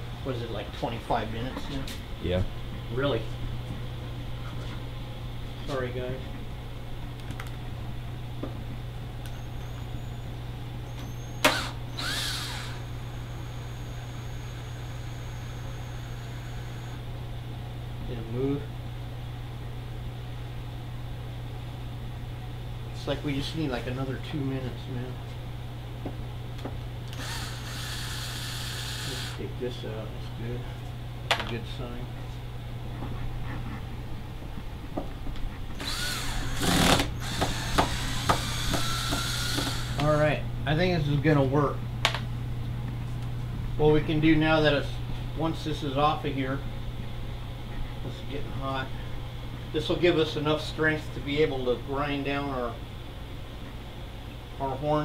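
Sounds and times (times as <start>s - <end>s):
steady low hum: 0.0s - 55.0s
cordless drill running: 11.4s - 17.0s, 27.1s - 29.4s, 35.8s - 40.1s.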